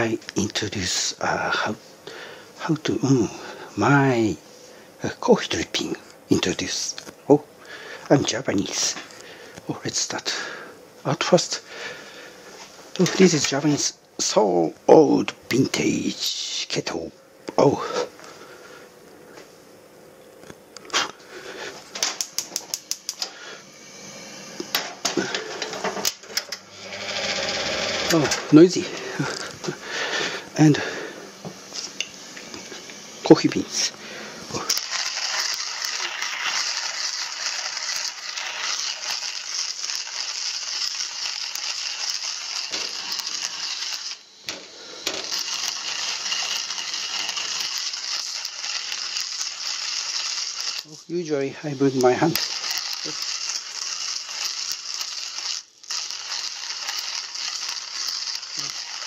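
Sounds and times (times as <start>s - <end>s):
gas igniter clicking: 22.0s - 23.4s
hand coffee mill grinding beans: 25.1s - 28.4s, 34.5s - 59.0s.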